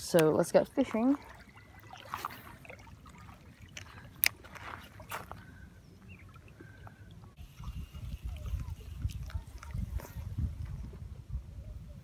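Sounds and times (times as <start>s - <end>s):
small waves lapping: 0.0s - 11.0s.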